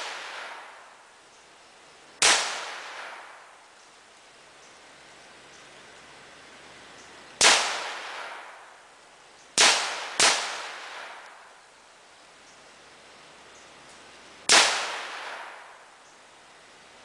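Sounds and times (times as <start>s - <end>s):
gunshots: 2.2s - 3.4s, 7.4s - 8.6s, 9.6s - 11.2s, 14.5s - 15.8s.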